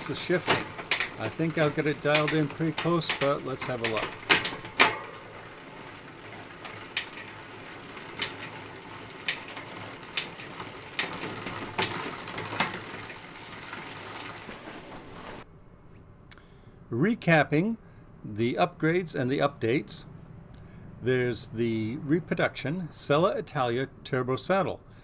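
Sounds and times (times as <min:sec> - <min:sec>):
bicycle chain whirring: 0:00.0 - 0:15.5.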